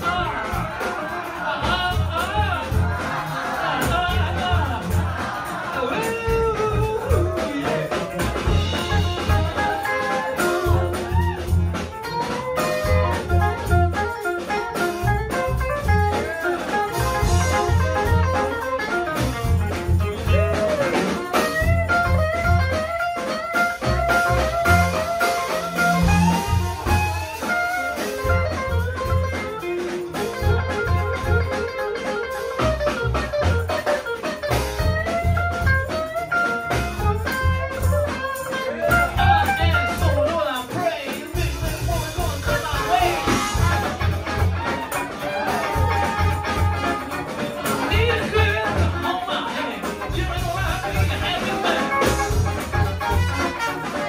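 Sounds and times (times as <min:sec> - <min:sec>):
drums: 0:00.0 - 0:54.0
walking upright bass: 0:00.0 - 0:54.0
melodic lead line: 0:41.4 - 0:54.0.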